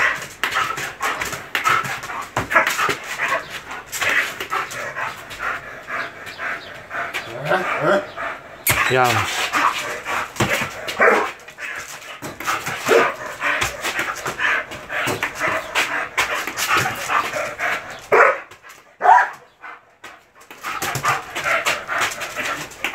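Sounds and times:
dog barking aggressively: 9.3s - 11.8s, 12.5s - 13.4s, 15.1s - 19.5s.

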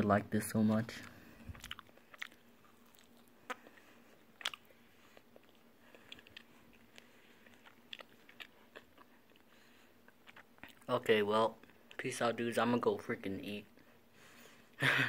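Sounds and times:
chewing with crunches: 0.9s - 12.1s.

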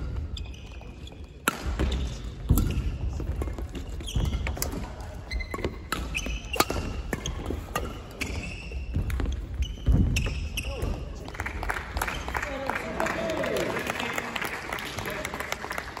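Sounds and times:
shoes squeaking on court: 0.0s - 11.2s
rackets hitting shuttlecock: 1.4s - 11.0s.

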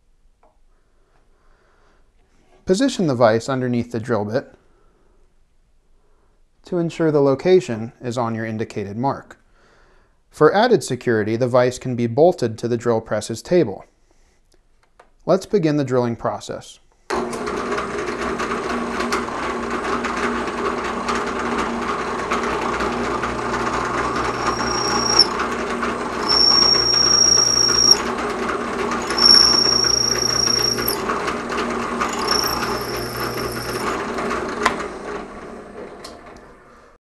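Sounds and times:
drill press motor running: 23.6s - 25.4s, 26.2s - 28.1s, 29.0s - 31.0s, 32.0s - 34.0s
drill bit squealing in metal: 24.1s - 25.4s, 26.2s - 28.1s, 29.0s - 31.0s, 32.0s - 34.0s.

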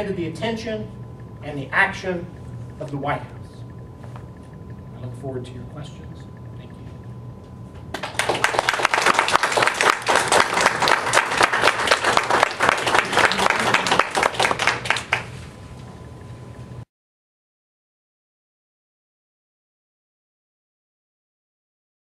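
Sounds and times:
faint room hum: 0.0s - 16.9s
audience applauding: 7.9s - 15.4s.

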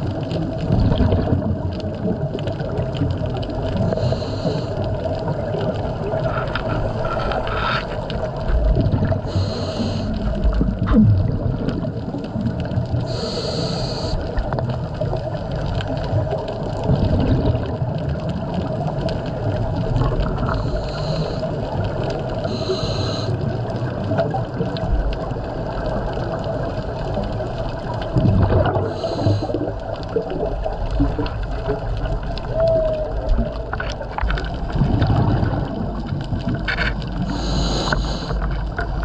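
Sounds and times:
bubbling exhales: 0.0s - 14.8s, 16.2s - 39.0s
faint steady hum: 0.0s - 39.0s
underwater rumble: 0.0s - 39.0s
scuba regulator hissing inhales: 3.8s - 4.9s, 9.2s - 10.3s, 13.0s - 14.4s, 20.5s - 21.6s, 22.4s - 23.4s, 28.8s - 29.7s, 37.2s - 38.5s.

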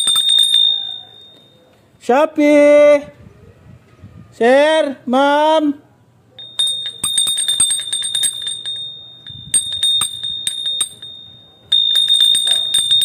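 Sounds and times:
small metal bell ringing rapidly: 0.0s - 1.6s, 6.4s - 13.0s.

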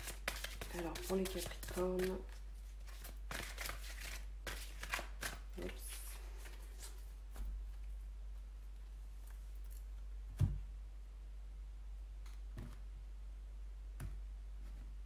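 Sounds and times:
cards being shuffled: 0.0s - 7.5s.

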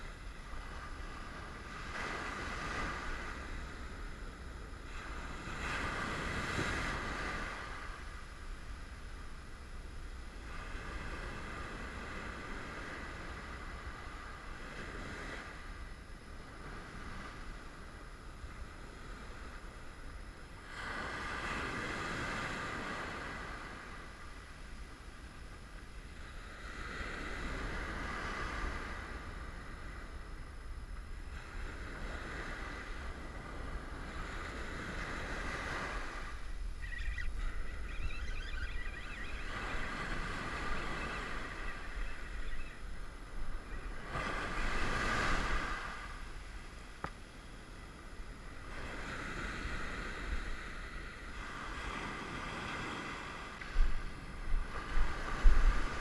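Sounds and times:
wind rumble on microphone: 0.0s - 56.0s
ocean surf washing up beach: 31.3s - 37.9s, 39.2s - 47.0s, 47.6s - 56.0s.

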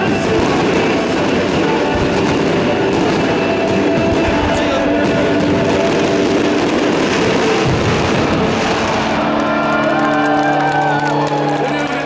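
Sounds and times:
fireworks bangs and crackles: 0.0s - 10.0s.

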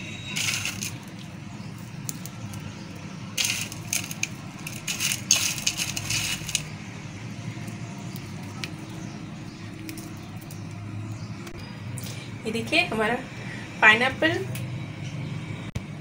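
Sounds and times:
hard candy crunching and clinking: 0.3s - 6.7s.

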